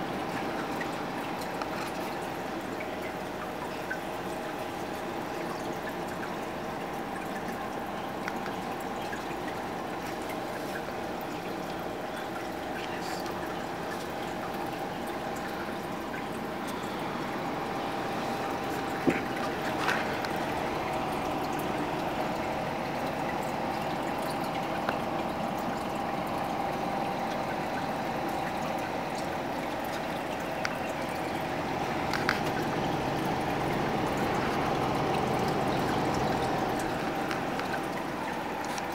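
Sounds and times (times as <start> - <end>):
faint steady hum: 0.0 - 38.9
water trickling into tank: 0.0 - 38.9.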